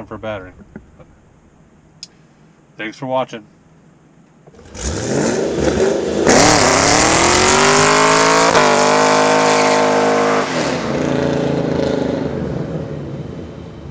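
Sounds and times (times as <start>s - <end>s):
car engine revving: 4.5s - 13.9s.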